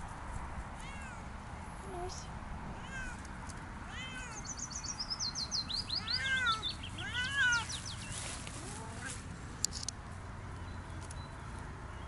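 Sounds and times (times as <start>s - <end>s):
cat meowing: 2.8s - 3.2s, 3.9s - 4.4s, 6.0s - 7.7s
songbird singing: 3.3s - 12.0s.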